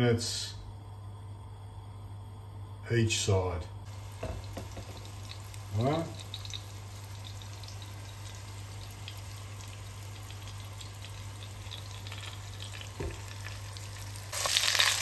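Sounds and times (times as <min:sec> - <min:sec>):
steady low hum: 0:00.0 - 0:14.4
meat sizzling in oil: 0:03.9 - 0:15.0.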